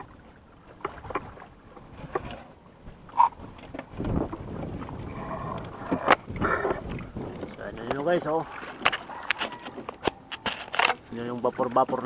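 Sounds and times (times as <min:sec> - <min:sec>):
water splashing around hull: 0:00.0 - 0:12.0.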